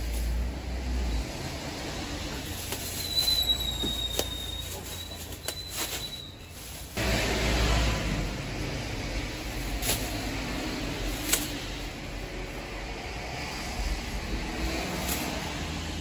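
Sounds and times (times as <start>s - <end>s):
supermarket hum: 0.0s - 16.0s
thin high squeal: 2.8s - 6.9s.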